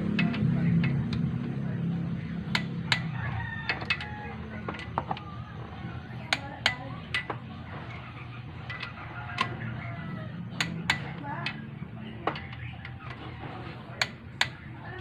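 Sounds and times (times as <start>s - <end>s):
torque wrench clicking: 0.0s - 1.3s, 2.5s - 5.2s.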